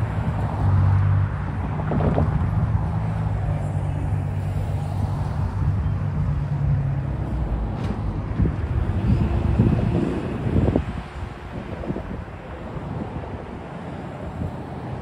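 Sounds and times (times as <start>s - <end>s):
vehicles crossing railroad tracks: 0.0s - 15.0s.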